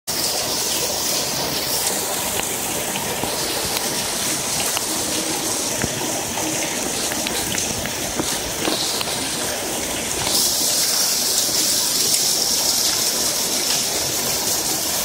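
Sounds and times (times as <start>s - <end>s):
steam leak hissing: 8.5s - 15.0s.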